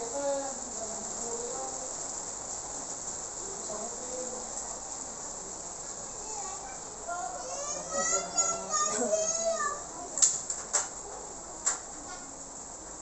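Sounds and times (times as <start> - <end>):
insects droning: 0.0 - 10.2
faint voices: 3.3 - 10.3.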